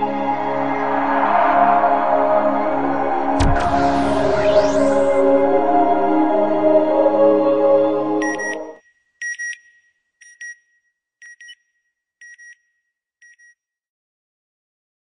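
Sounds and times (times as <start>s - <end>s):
ambient electronic music: 0.0s - 8.8s.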